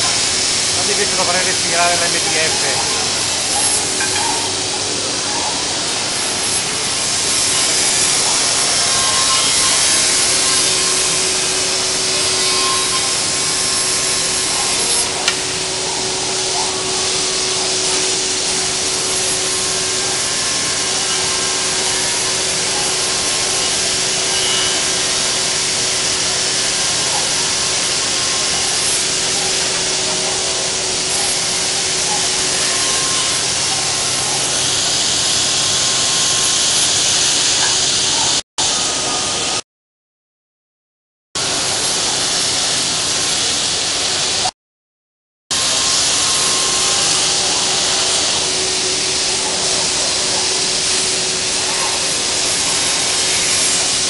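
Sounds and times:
cnc machine cutting wood: 0.0 - 39.6, 45.5 - 54.0
held tone: 1.4 - 5.7, 8.7 - 22.8.

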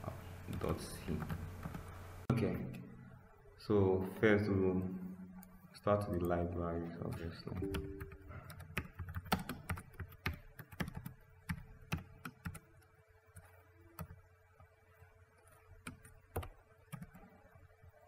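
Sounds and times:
computer keyboard typing: 7.0 - 14.2, 15.8 - 17.2.

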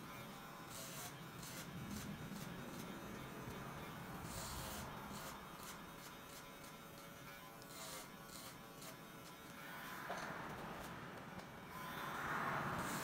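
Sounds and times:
electric hair clippers buzzing: 0.0 - 13.0.

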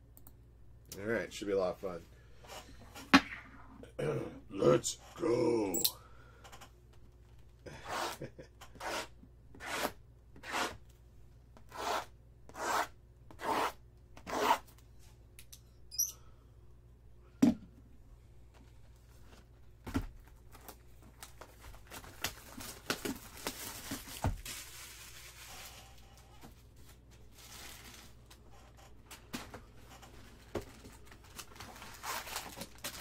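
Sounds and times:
plastic crinkling: 20.5 - 26.0, 30.4 - 33.0.

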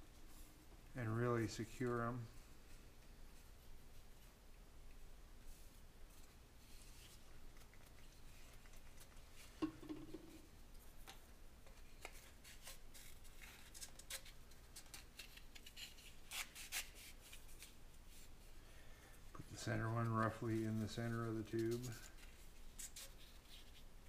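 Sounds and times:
paper tube rubs and clicks: 19.9 - 24.0.

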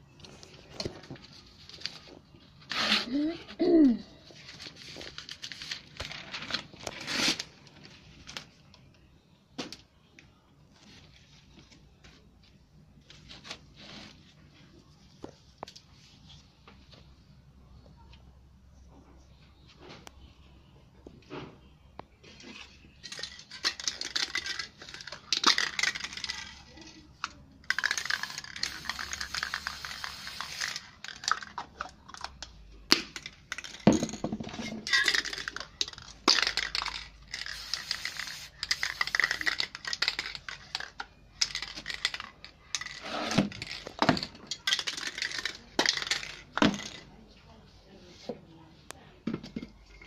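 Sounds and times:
spray paint can hissing: 27.7 - 31.2, 36.5 - 40.4.

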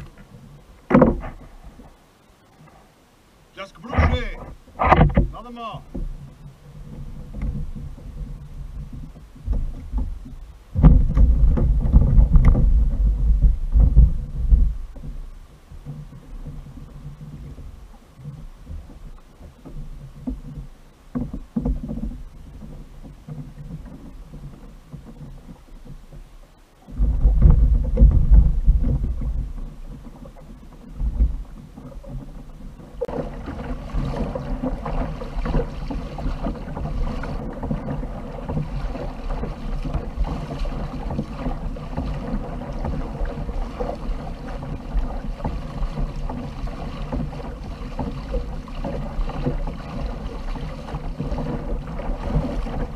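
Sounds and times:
low buffeting rumble: 0.0 - 19.6, 26.5 - 30.0
water rushing along a kayak hull: 0.0 - 52.9.

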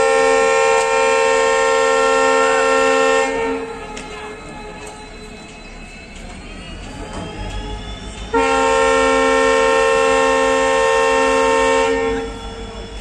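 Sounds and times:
locomotive horn blast: 0.0 - 5.0, 7.6 - 12.7.

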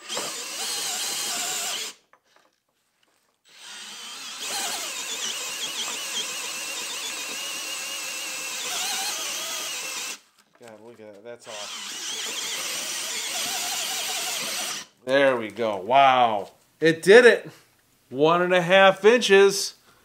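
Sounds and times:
drill boring into timber: 0.0 - 2.0, 3.5 - 10.2, 11.4 - 14.9.

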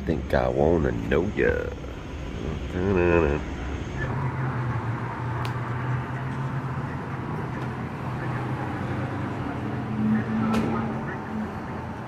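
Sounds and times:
low mechanical hum: 0.0 - 12.0
traffic noise: 0.0 - 12.0.

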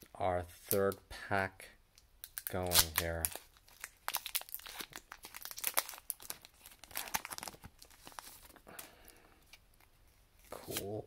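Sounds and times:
foil wrapper tearing and crinkling: 2.2 - 8.6.

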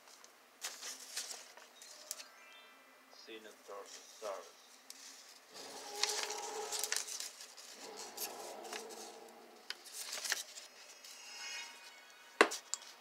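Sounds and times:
paper rustling and crinkling: 0.0 - 2.2, 3.9 - 10.9
faint pitched drone: 5.5 - 13.0.

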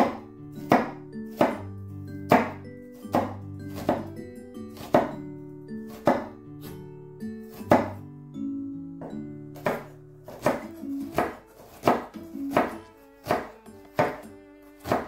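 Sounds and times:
knife chopping on cutting board: 0.0 - 1.7, 2.3 - 4.2, 4.8 - 5.2, 5.9 - 6.8, 7.5 - 8.0, 9.0 - 15.0
background music: 0.0 - 15.0.

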